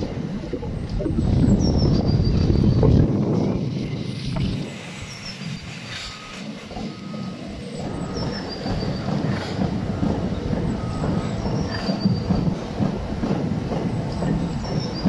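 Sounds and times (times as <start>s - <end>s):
train wheels rumbling on rail: 0.0s - 15.0s
high wheel squeals: 4.1s - 9.7s, 10.3s - 12.6s.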